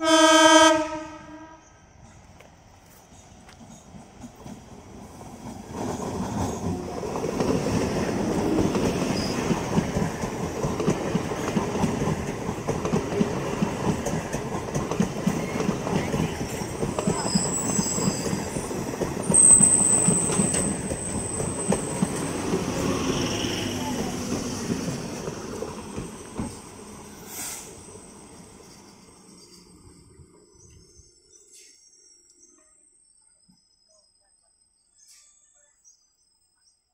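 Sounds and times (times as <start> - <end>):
train coaches rumbling: 0.0 - 31.9
train wheels squealing: 8.6 - 10.2, 15.1 - 25.2, 26.0 - 36.8.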